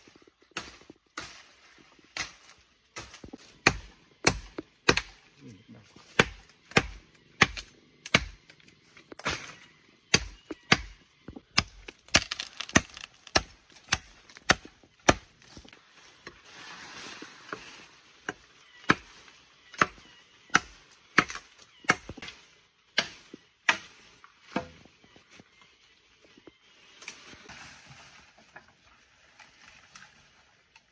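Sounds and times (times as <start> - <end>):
wood being chopped: 3.0 - 5.2, 6.1 - 8.5, 9.1 - 15.7, 18.2 - 19.1, 19.8 - 22.4.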